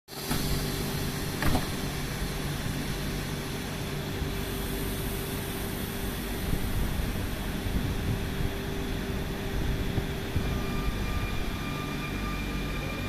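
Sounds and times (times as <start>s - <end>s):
train equipment humming: 0.1s - 13.0s
train doors shutting knock: 0.2s - 2.1s.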